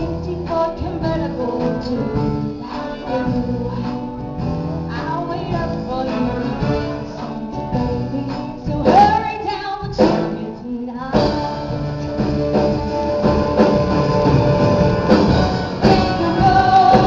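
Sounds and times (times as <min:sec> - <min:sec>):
woman singing into microphone: 0:00.0 - 0:04.2, 0:04.9 - 0:12.9, 0:15.8 - 0:17.0
live band playing: 0:00.0 - 0:17.0.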